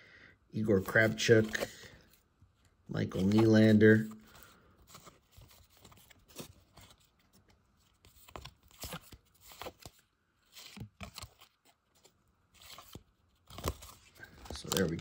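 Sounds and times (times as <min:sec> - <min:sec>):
cards flipped by hand: 0:00.8 - 0:02.0, 0:07.8 - 0:15.0.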